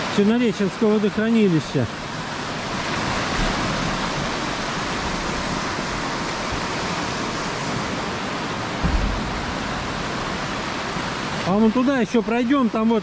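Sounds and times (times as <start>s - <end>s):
river rushing: 0.0s - 13.0s
low thump: 8.8s - 10.0s.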